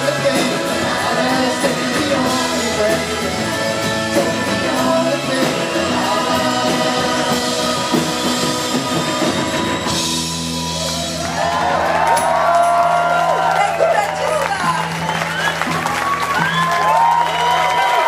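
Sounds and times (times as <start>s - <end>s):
live band with singer: 0.0s - 18.0s
crowd cheering and whooping: 10.0s - 18.0s.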